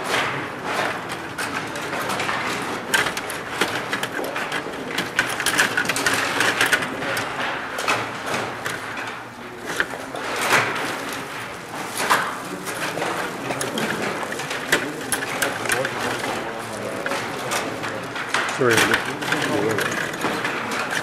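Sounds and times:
plastic players and puck clacking: 0.0 - 21.0.

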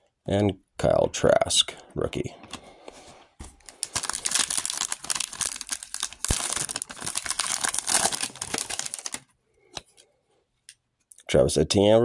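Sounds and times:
foil wrapper crinkling and tearing: 3.6 - 9.3.

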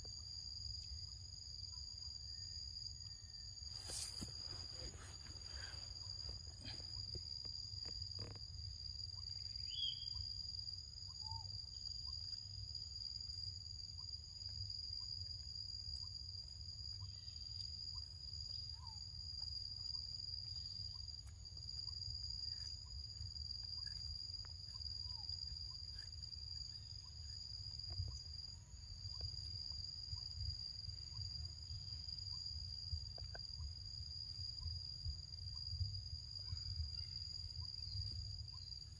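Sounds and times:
insects droning: 0.0 - 38.9
faint chirps and clicks: 13.9 - 38.9.

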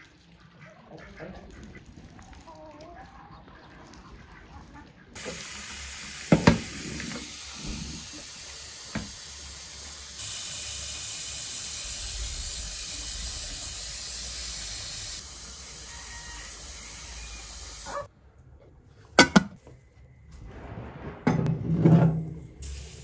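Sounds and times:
tap water running into metal pot: 5.2 - 17.9.

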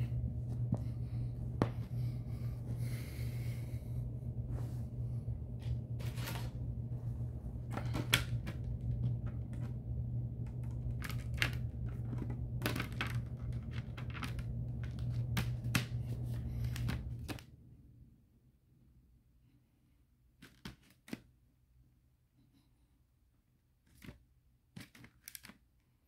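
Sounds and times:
steady low hum: 0.0 - 20.4.

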